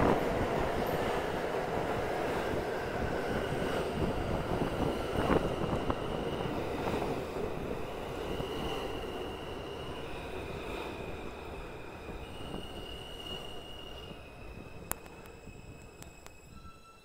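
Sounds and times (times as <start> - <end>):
rail clack: 0.0 - 14.2
subway train rail rumble: 0.0 - 17.0
faint high whine: 11.4 - 17.0.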